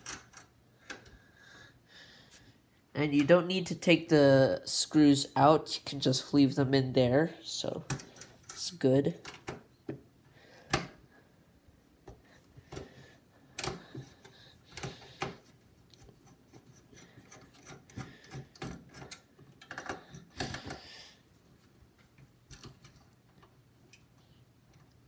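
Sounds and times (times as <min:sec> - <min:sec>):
screwdriver clicks and metal scrapes: 0:07.7 - 0:09.6, 0:13.6 - 0:20.9.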